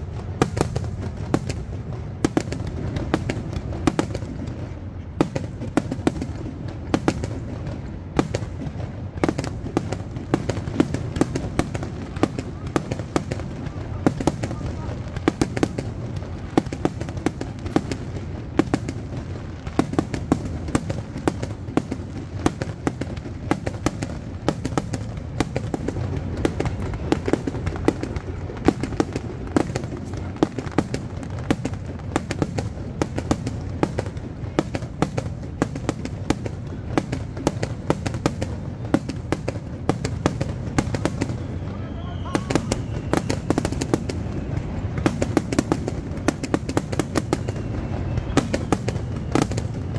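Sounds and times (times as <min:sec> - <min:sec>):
fireworks bursting: 0:00.0 - 0:49.9.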